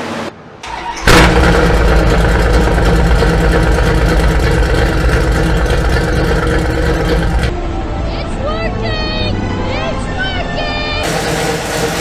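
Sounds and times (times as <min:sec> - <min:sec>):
engine starting and running: 0:00.0 - 0:07.6, 0:11.0 - 0:12.0
deep pulsing exhaust: 0:00.7 - 0:07.8, 0:11.0 - 0:12.0.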